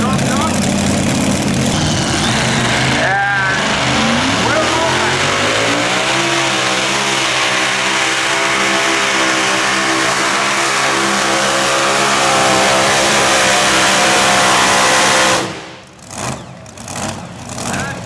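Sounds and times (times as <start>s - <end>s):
tractor engine revving: 0.0s - 18.0s.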